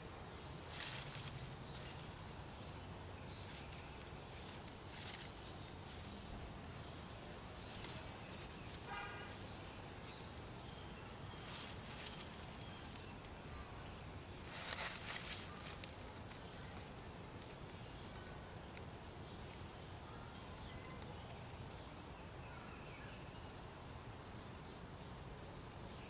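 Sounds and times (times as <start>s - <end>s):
dry leaves rustling: 0.0s - 26.0s.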